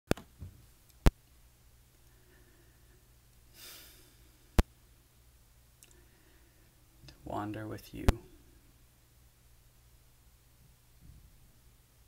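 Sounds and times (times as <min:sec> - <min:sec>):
faint room hum: 0:00.1 - 0:12.0
breath: 0:02.0 - 0:04.6, 0:05.9 - 0:06.8.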